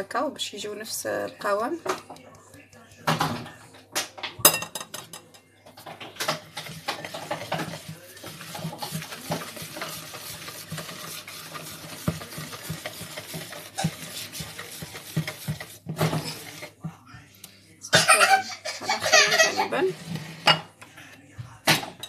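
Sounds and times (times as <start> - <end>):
whisk beating batter in bowl: 0.8 - 3.6, 5.7 - 21.8
whisk wires clicking on bowl: 5.8 - 17.5.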